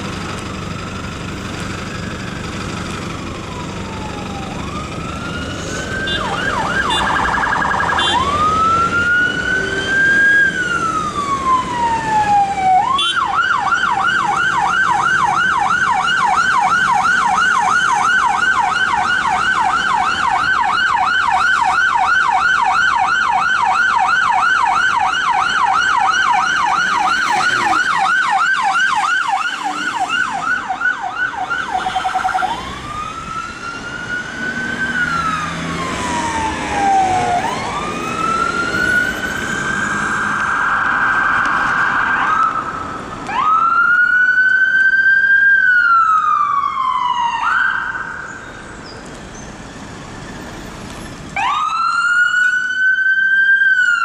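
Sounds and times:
faint road traffic: 0.0 - 54.0
police siren wailing and yelping: 3.1 - 48.4, 51.4 - 54.0.

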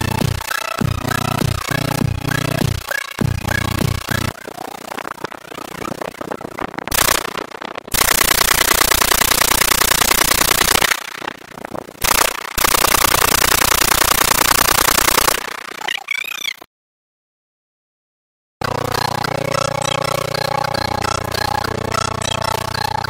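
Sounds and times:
rifle firing automatic bursts: 7.9 - 11.0, 12.0 - 15.5.

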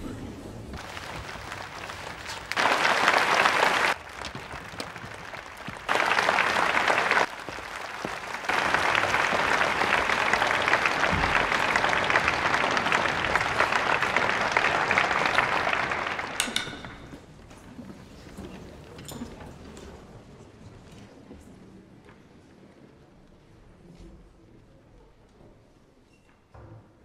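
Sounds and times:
audience applauding: 0.8 - 17.2.

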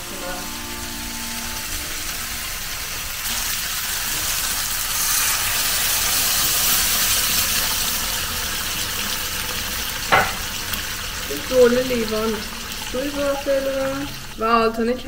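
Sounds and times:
water sizzling in a hot pan: 0.0 - 15.0
sauce bubbling: 1.6 - 14.6.

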